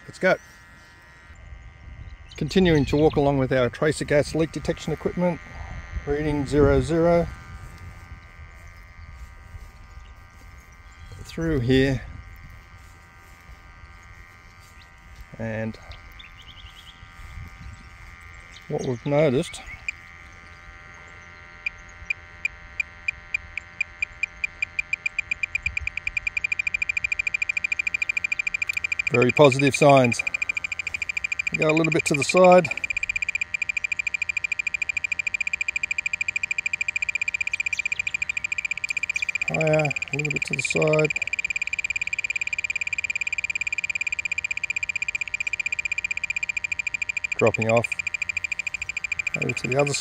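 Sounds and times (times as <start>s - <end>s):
gas detector beeping: 21.6s - 50.0s.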